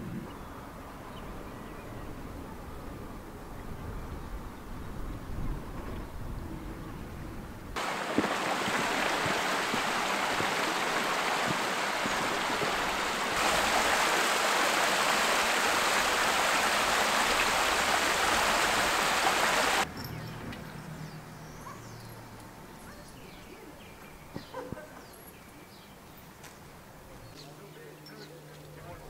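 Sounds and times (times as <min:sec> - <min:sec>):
stream rushing over stones: 0:07.8 - 0:19.9.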